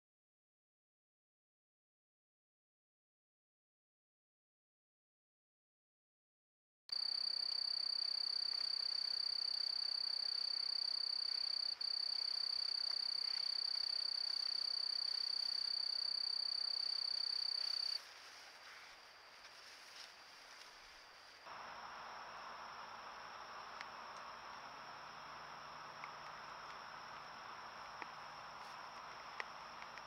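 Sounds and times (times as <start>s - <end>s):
faint background hiss: 6.9s - 30.0s
high-pitched insect trill: 6.9s - 30.0s.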